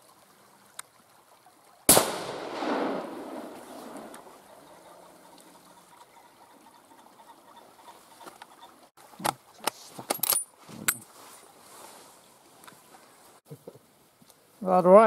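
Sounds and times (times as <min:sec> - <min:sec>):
faint background hiss: 0:09.0 - 0:15.0.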